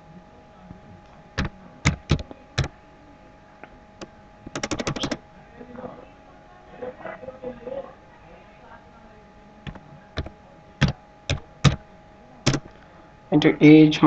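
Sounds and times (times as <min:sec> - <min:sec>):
computer keyboard keystrokes: 0:01.4 - 0:02.7, 0:04.5 - 0:05.2, 0:09.7 - 0:11.8, 0:12.5 - 0:12.7.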